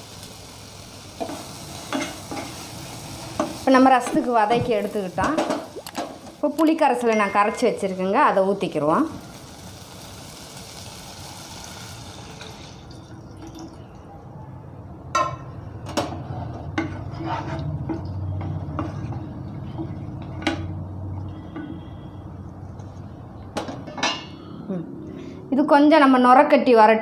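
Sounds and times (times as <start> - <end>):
faint sizzling in a pot: 0.0 - 13.4.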